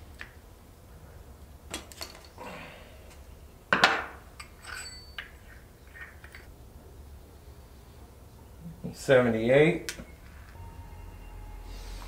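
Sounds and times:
parts clattering: 1.6s - 6.5s
small parts clicking and clinking: 4.4s - 6.5s.

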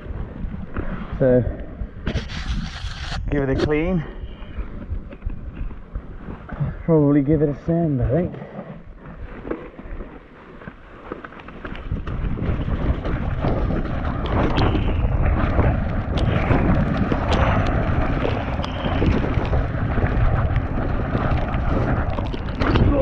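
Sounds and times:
tyres and wind rumble: 0.0s - 23.0s
bike rattling clicks: 11.0s - 23.0s.

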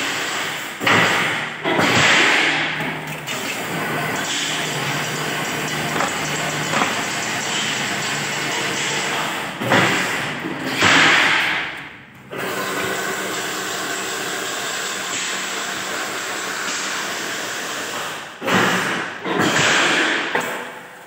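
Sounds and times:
fence making machine running: 0.0s - 16.6s.

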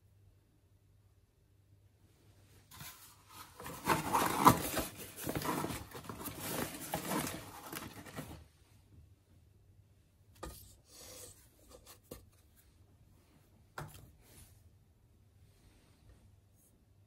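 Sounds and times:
rustling handling noise: 2.4s - 8.8s.

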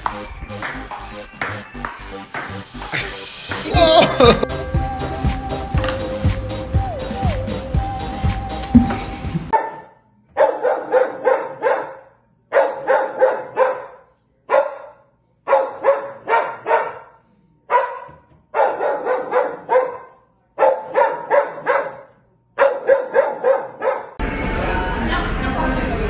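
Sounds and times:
dog barking sharply: 9.5s - 24.2s.

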